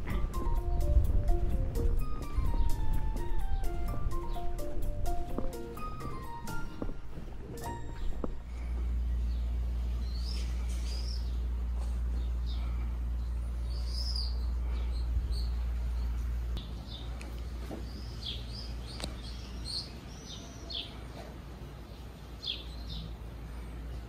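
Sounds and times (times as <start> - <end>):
low rumble: 0.0 - 16.6
songbirds chirping: 0.0 - 24.0.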